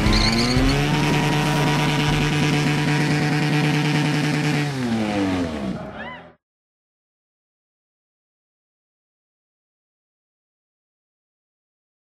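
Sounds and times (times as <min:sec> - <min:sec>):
motorcycle engine revving: 0:00.0 - 0:06.0.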